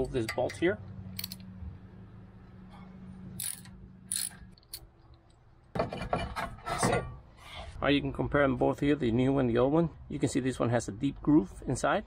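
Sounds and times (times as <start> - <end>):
metal clanking and scraping: 5.7 - 7.5.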